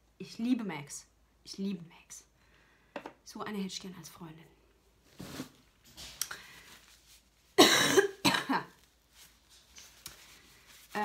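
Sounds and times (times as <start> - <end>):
woman coughing: 7.6 - 8.7.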